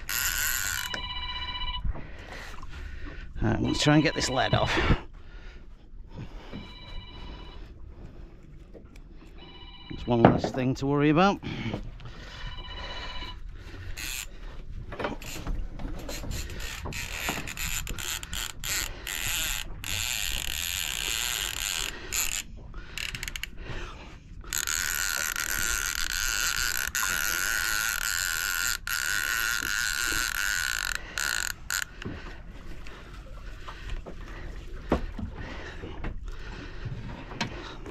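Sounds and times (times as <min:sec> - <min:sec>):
fishing reel ratchet clicking: 0:00.0 - 0:01.0, 0:14.0 - 0:14.3, 0:16.1 - 0:23.6, 0:24.5 - 0:32.0
fishing reel buzzing: 0:00.0 - 0:01.5, 0:12.7 - 0:14.4, 0:15.2 - 0:23.6, 0:24.4 - 0:32.0.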